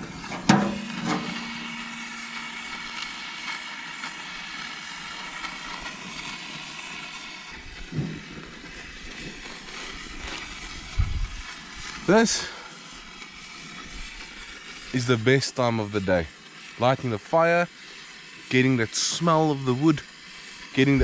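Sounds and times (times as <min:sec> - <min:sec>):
gas torch hissing: 0:00.0 - 0:21.0
metal clank: 0:00.3 - 0:01.5.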